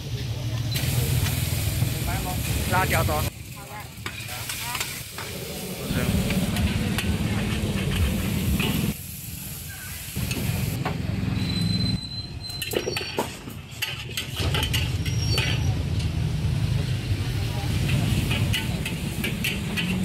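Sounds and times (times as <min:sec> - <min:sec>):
noodles sizzling in a wok: 0:00.7 - 0:10.8, 0:13.8 - 0:20.0
metal ladle scraping and clinking: 0:06.5 - 0:09.0, 0:12.4 - 0:16.2, 0:17.9 - 0:20.0.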